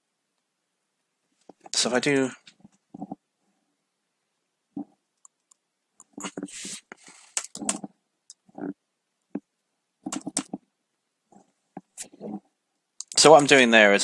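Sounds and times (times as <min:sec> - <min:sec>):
computer keyboard typing: 0:07.4 - 0:07.9, 0:10.0 - 0:10.6.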